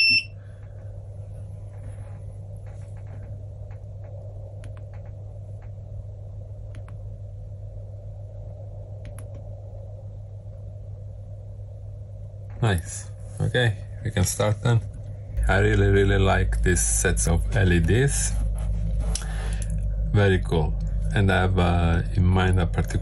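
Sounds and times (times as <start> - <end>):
steady low hum: 0.0 - 23.0
wiring ticks and clicks: 2.6 - 5.8.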